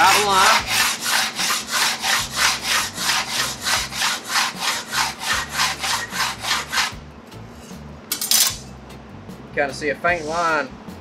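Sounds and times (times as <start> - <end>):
steel scraping on steel tube: 0.0 - 7.8.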